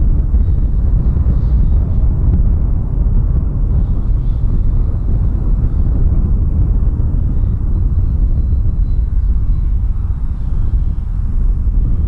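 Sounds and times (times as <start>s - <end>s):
faint whine of model jet: 0.0s - 12.0s
wind buffeting microphone: 0.0s - 12.0s.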